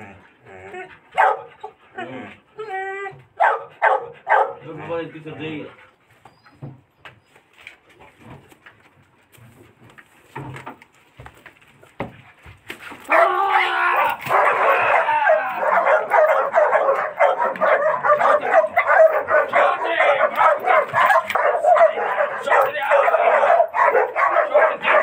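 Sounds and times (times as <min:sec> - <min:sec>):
dog barking rapidly: 0:01.2 - 0:01.5, 0:03.4 - 0:04.6, 0:14.2 - 0:25.0.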